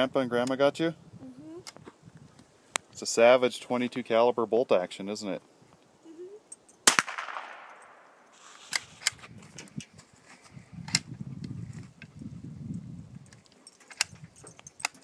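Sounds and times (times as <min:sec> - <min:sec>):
rifle shot with echo: 0:06.8 - 0:08.2.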